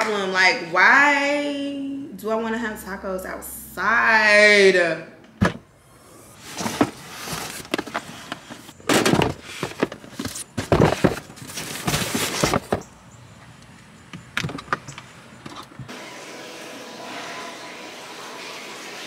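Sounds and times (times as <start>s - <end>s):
cardboard boxes thumping and scraping: 6.4s - 12.8s.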